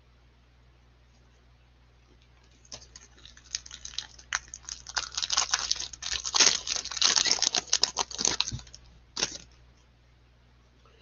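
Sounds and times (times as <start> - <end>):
foil wrapper tearing and crinkling: 2.4 - 9.5.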